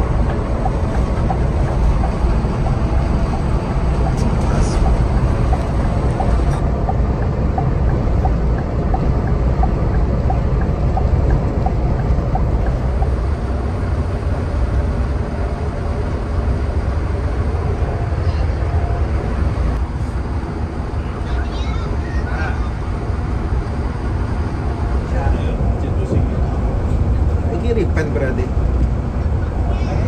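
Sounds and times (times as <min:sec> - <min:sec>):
light regular ticking: 0:00.0 - 0:13.2
coach engine drone: 0:00.0 - 0:30.0
tyre and road noise: 0:00.0 - 0:30.0.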